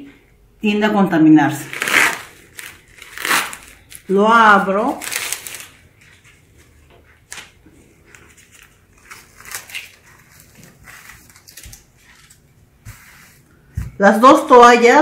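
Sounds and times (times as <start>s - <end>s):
faint rustling of wrapper: 4.9s - 6.7s, 7.4s - 12.5s.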